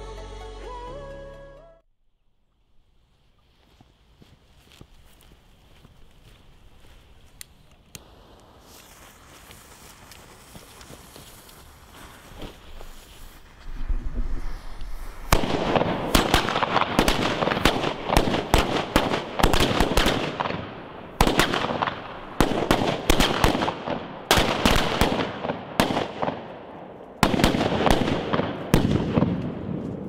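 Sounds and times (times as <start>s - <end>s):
firecracker crackle: 8.0s - 26.5s
firecrackers banging: 13.4s - 26.5s.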